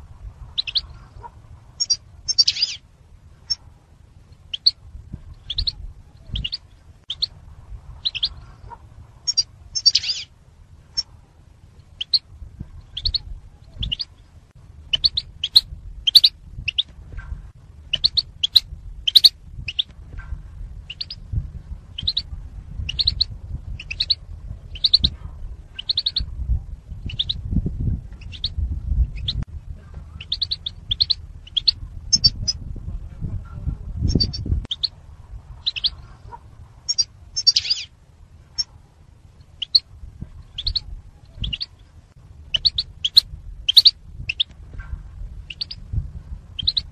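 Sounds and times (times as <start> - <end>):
low rumble: 0.0 - 46.9
goldfinches chirping: 1.8 - 2.8, 9.3 - 10.3, 14.9 - 16.8, 18.0 - 19.8, 42.5 - 44.4.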